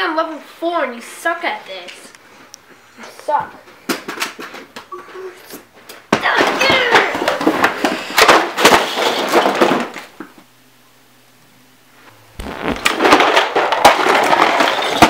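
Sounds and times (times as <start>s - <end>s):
clattering and crashing scuffle: 5.8s - 10.1s, 12.4s - 15.0s.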